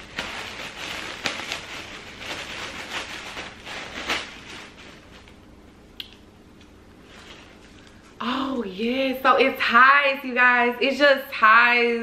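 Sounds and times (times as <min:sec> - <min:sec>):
packaging and clothing rustling: 0:00.0 - 0:05.4.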